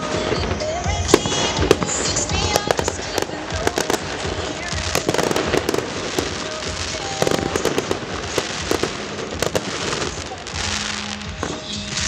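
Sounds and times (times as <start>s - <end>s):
firework shells bursting: 0.0s - 11.7s
firework crackle: 0.0s - 12.0s.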